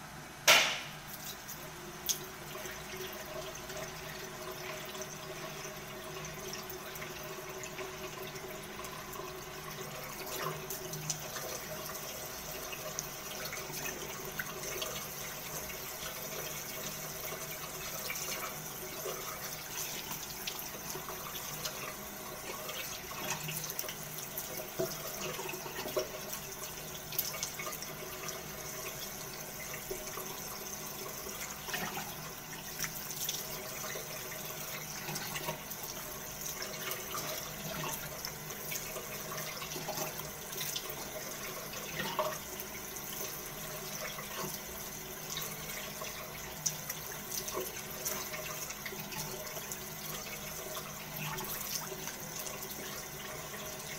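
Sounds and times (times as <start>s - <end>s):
tap running into a sink: 0.5s - 2.2s.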